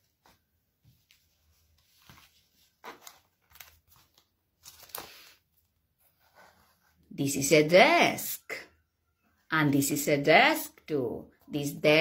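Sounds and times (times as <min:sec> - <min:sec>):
paper rustling: 0:00.0 - 0:06.8.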